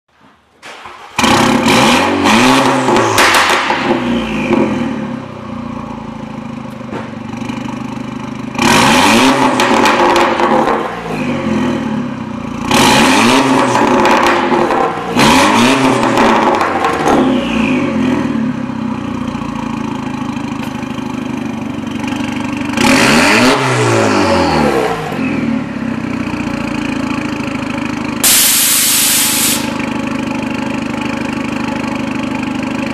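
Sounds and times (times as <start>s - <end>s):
car engine idling and revving: 0.8s - 32.9s
short hiss: 28.2s - 29.8s.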